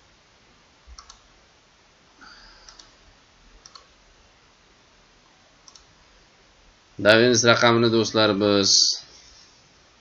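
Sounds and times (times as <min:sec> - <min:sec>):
computer mouse clicks: 0:00.9 - 0:01.3, 0:02.6 - 0:03.0, 0:03.6 - 0:03.9, 0:05.6 - 0:05.9.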